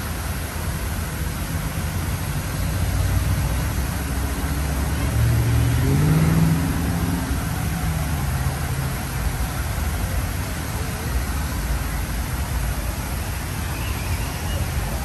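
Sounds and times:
water rushing down fountain: 0:00.0 - 0:15.0
vehicle engine accelerating: 0:04.1 - 0:09.0.

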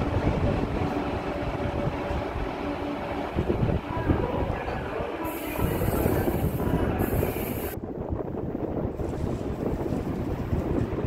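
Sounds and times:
wind buffeting microphone: 0:00.0 - 0:11.0
high hiss: 0:05.3 - 0:07.8.

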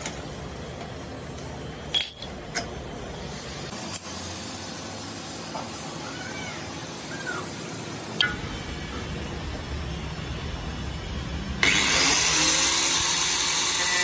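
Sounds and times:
metal clinks: 0:01.9 - 0:02.8
steady low hum: 0:06.8 - 0:13.0.

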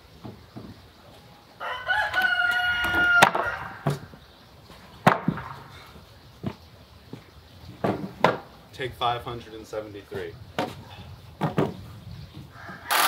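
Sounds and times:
rooster crowing: 0:01.6 - 0:03.9, 0:12.5 - 0:13.0.

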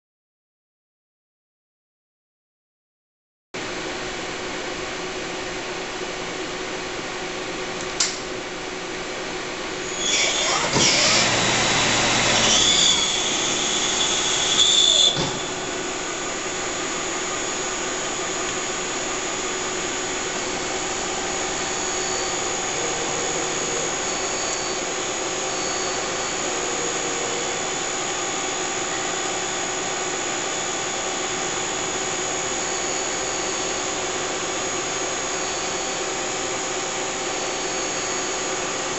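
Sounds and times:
sharp click: 0:07.8 - 0:08.2
mechanical whir with high whine: 0:09.4 - 0:38.9
machine hum: 0:09.7 - 0:38.9.

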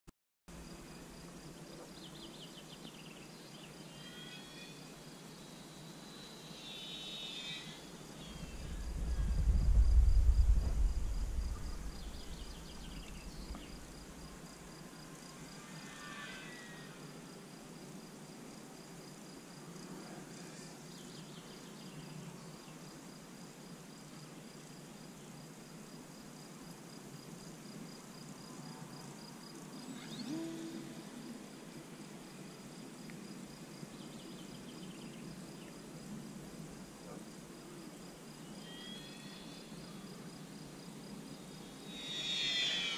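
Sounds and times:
faint higher insect calls: 0:00.5 - 0:42.9
insects chirring: 0:00.5 - 0:42.9
wind buffeting microphone: 0:08.3 - 0:14.2.

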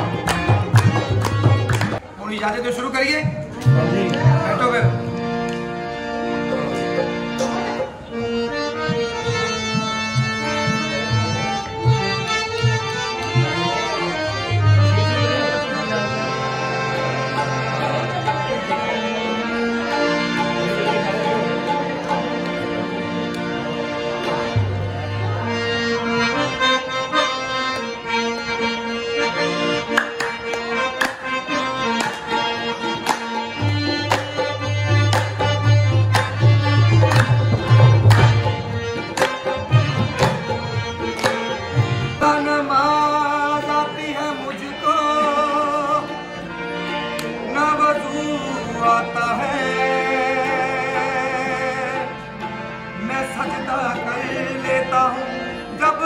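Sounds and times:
hand claps: 0:00.0 - 0:02.5, 0:29.8 - 0:41.8, 0:47.2 - 0:47.4
harmonium chords: 0:00.0 - 0:56.0
man singing: 0:42.1 - 0:46.2, 0:47.4 - 0:52.2, 0:53.0 - 0:56.0.

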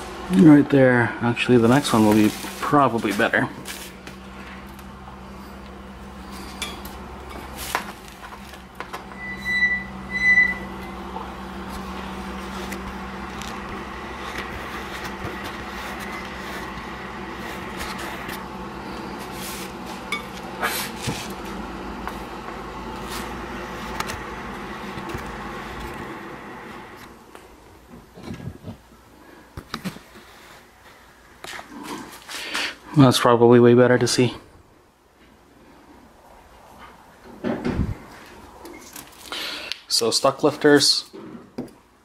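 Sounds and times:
room hum: 0:00.0 - 0:42.0
short high electronic beeps: 0:09.2 - 0:10.7.

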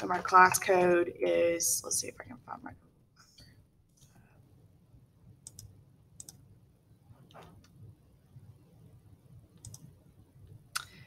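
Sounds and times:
low room hum: 0:00.0 - 0:11.0
computer mouse clicks: 0:05.4 - 0:06.4, 0:09.6 - 0:09.9.

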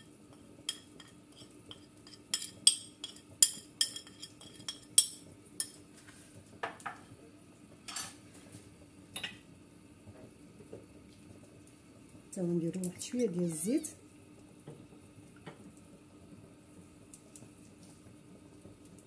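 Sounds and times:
metal spoon clinking on ceramic plate: 0:00.7 - 0:05.8.

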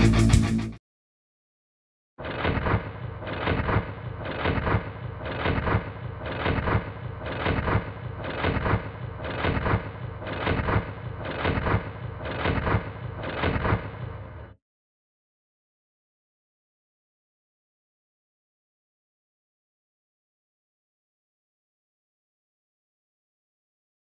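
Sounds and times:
slowed machine gun firing: 0:02.2 - 0:14.6.

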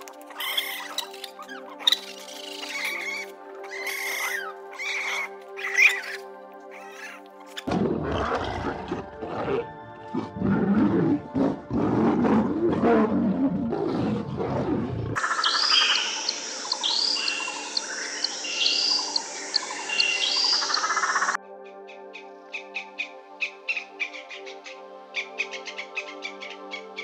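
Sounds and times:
background music: 0:00.0 - 0:27.0
birds chirping: 0:00.3 - 0:07.6, 0:15.2 - 0:27.0
large animal growling and roaring: 0:07.7 - 0:15.2.

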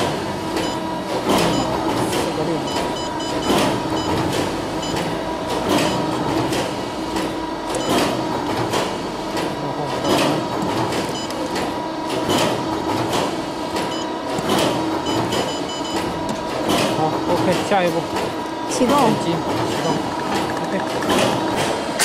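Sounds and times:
machinery humming: 0:00.0 - 0:22.0
machinery knocks and clicks: 0:00.0 - 0:22.0
high-pitched beeping: 0:01.4 - 0:01.8, 0:02.6 - 0:05.2, 0:10.0 - 0:10.5, 0:11.1 - 0:11.4, 0:15.0 - 0:16.2, 0:19.8 - 0:20.2.

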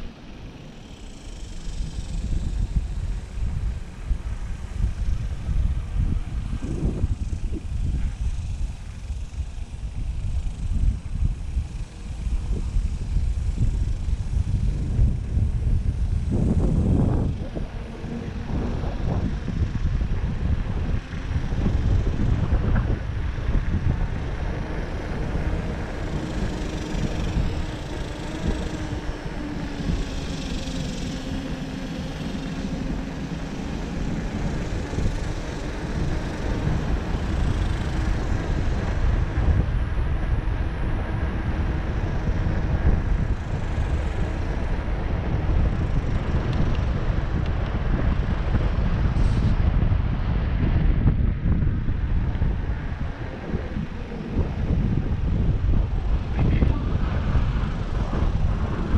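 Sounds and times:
bike tyres rolling on concrete: 0:00.0 - 0:58.9
wind buffeting microphone: 0:00.0 - 0:58.9.

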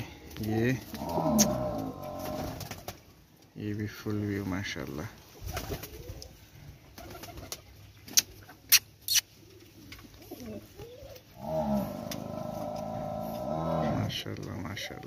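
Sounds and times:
pigeons cooing: 0:00.8 - 0:02.9, 0:05.4 - 0:07.6, 0:08.2 - 0:14.1.

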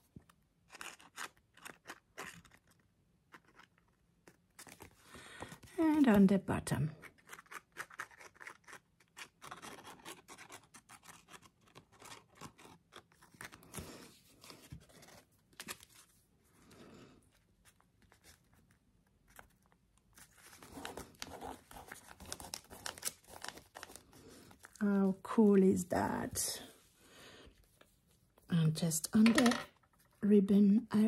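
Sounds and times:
fingers pressing and smoothing paper: 0:07.0 - 0:15.2, 0:20.2 - 0:24.8.

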